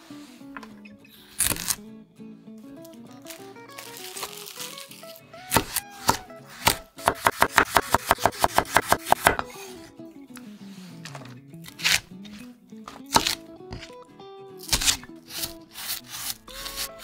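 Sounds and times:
soft background music: 0:00.0 - 0:17.0
plastic wrap crinkling: 0:02.8 - 0:05.2
knife chopping on wooden board: 0:05.5 - 0:09.5, 0:13.1 - 0:13.9, 0:14.7 - 0:16.9.

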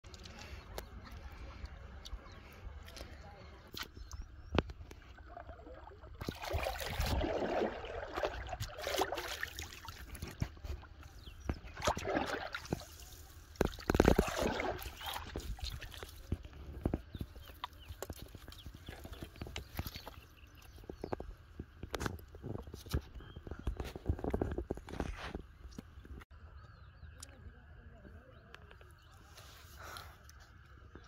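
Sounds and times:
fish splashing in shallow water: 0:00.0 - 0:23.0.

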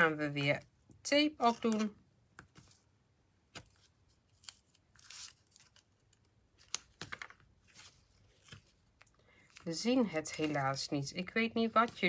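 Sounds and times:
paper card rustling: 0:03.5 - 0:12.0.

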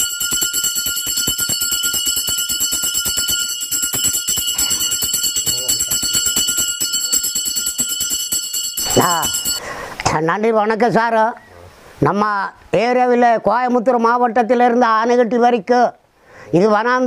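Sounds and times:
hand bell ringing: 0:00.0 - 0:09.6.

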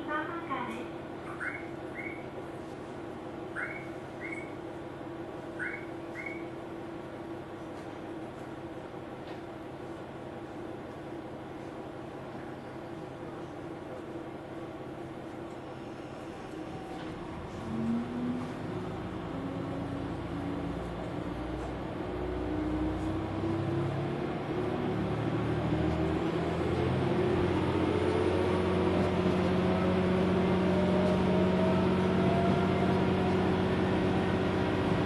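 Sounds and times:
diesel engine under load: 0:16.8 - 0:35.0.

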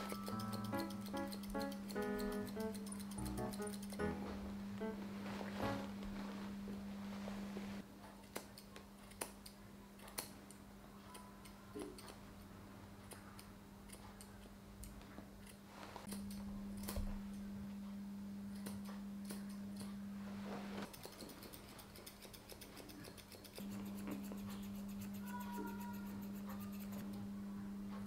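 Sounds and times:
scissors snipping hair: 0:00.0 - 0:04.2, 0:08.1 - 0:12.2, 0:13.0 - 0:17.0, 0:18.5 - 0:20.0, 0:20.8 - 0:27.2
steady low hum: 0:00.0 - 0:08.0, 0:15.6 - 0:20.9, 0:26.1 - 0:28.0.

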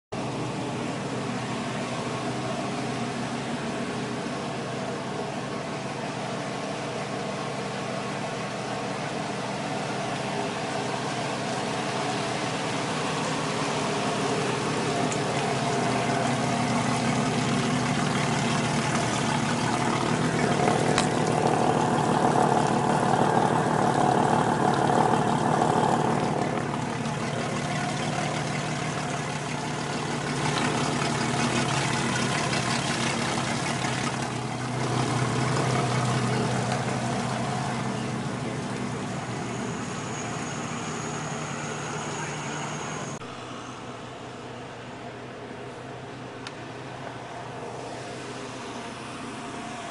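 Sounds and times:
outboard motors idling: 0:00.2 - 0:49.9
water splashing: 0:08.6 - 0:41.4.

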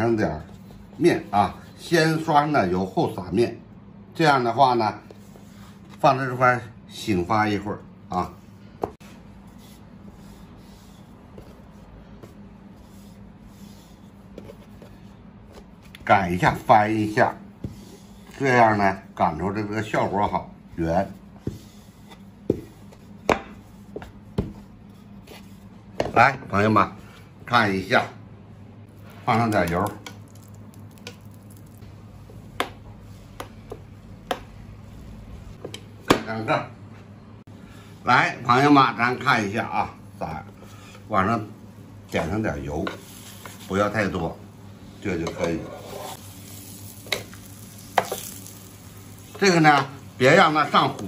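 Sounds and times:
steady low hum: 0:00.0 - 0:51.0
rolling pin rubbing on dough: 0:09.0 - 0:15.8, 0:16.4 - 0:19.1, 0:19.8 - 0:26.2, 0:45.3 - 0:46.2
soft squishy dough sounds: 0:28.8 - 0:35.6.

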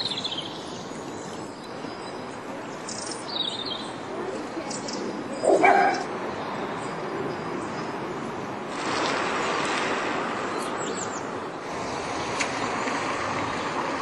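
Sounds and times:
birds chirping: 0:00.0 - 0:08.3, 0:10.4 - 0:12.0
floodwater rushing: 0:04.0 - 0:14.0
dog barking: 0:05.4 - 0:06.1.

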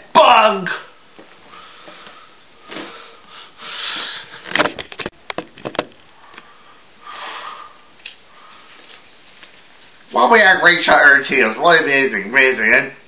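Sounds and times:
small sharp clicks and knocks: 0:04.5 - 0:06.5
rustling handling noise: 0:08.0 - 0:10.2.

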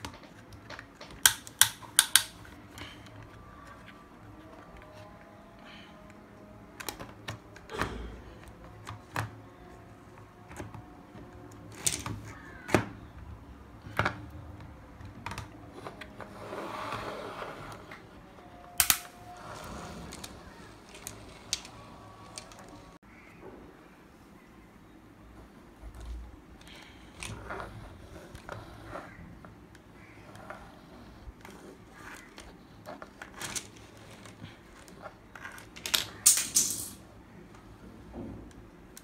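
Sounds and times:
plastic toys clicking and knocking: 0:00.0 - 0:03.9, 0:06.8 - 0:16.1, 0:18.8 - 0:19.1, 0:20.1 - 0:22.9, 0:31.4 - 0:37.0.

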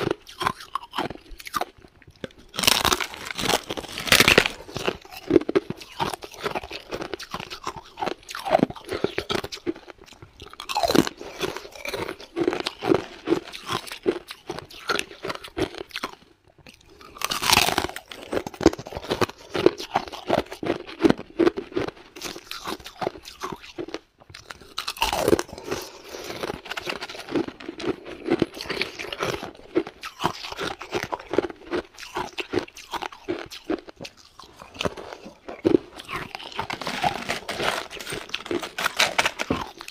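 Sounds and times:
person crunching ice: 0:00.0 - 0:16.2, 0:16.9 - 0:39.9.

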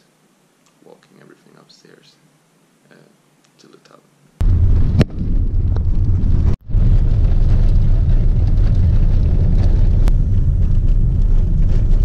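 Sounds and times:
car engine and tyres rumbling: 0:04.7 - 0:12.0.

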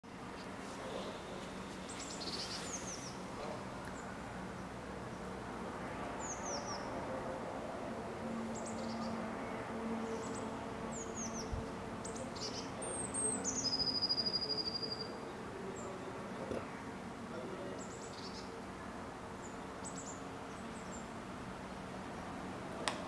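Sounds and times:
songbirds chirping: 0:00.0 - 0:23.0
bird trill: 0:10.2 - 0:15.2.

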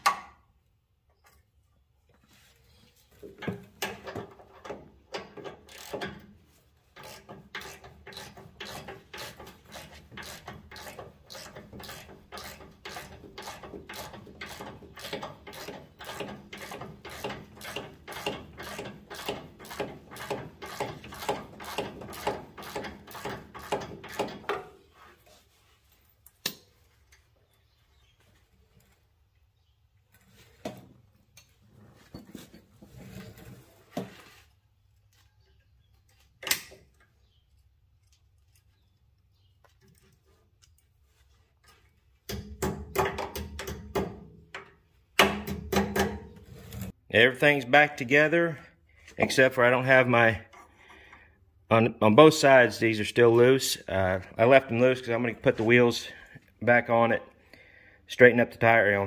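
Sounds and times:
ratchet wrench clicking: 0:05.7 - 0:06.2, 0:07.0 - 0:24.3.

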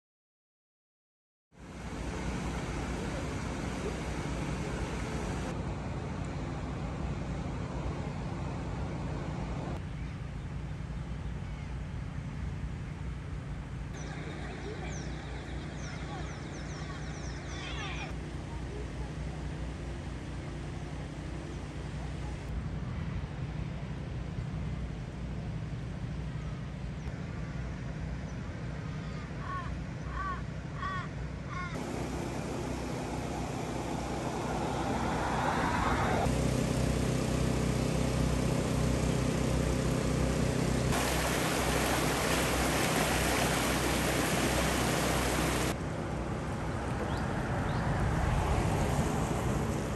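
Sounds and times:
floodwater rushing: 0:01.6 - 0:05.6, 0:31.8 - 0:36.3, 0:40.9 - 0:49.9
steady low hum: 0:01.6 - 0:49.9.

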